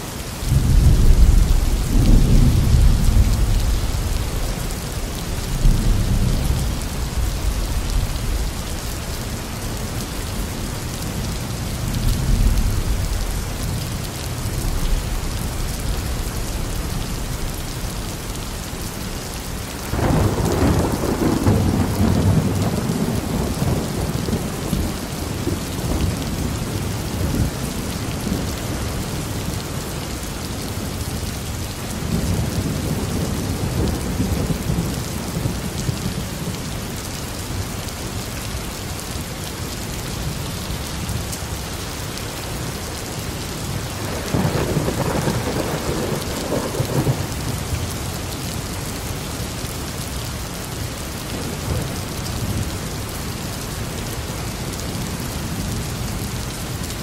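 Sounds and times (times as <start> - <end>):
steady rain: 0.0 - 57.0
rolling thunder: 0.5 - 8.6, 19.9 - 28.6, 43.9 - 47.7.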